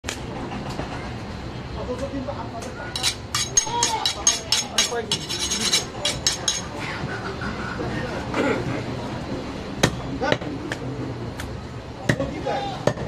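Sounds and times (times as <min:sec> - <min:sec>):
market voices and bustle: 0:00.0 - 0:13.0
knife honing against a blade: 0:03.0 - 0:06.7.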